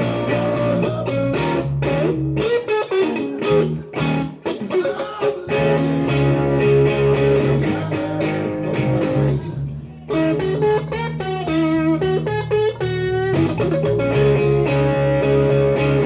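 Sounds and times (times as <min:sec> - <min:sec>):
electric bass: 0:00.0 - 0:04.4, 0:05.5 - 0:16.0
electric guitar bending notes: 0:00.0 - 0:16.0.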